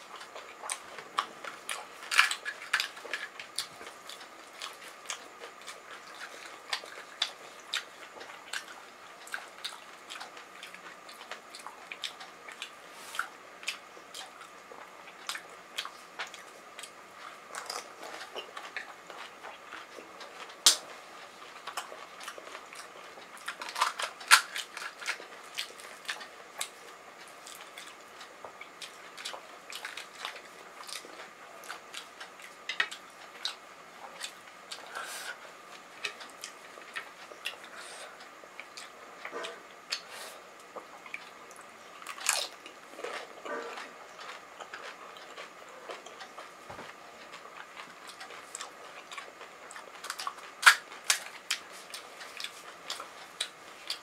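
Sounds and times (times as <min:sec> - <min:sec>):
crunchy chewing: 0:00.0 - 0:54.0
crisp shells cracking: 0:50.1 - 0:51.3.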